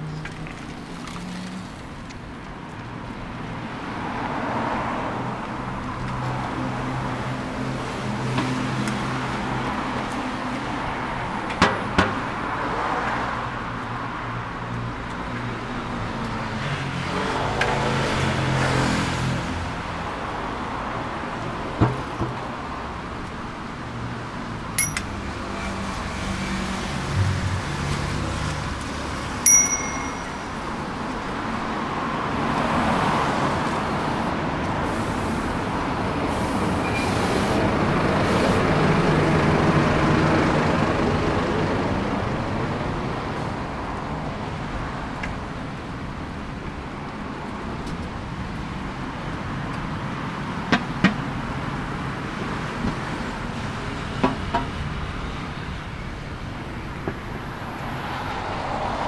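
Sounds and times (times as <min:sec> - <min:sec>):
street traffic: 0:00.0 - 0:59.0
metallic dings: 0:24.8 - 0:25.4, 0:29.4 - 0:30.8
vehicle passing: 0:25.2 - 0:29.4.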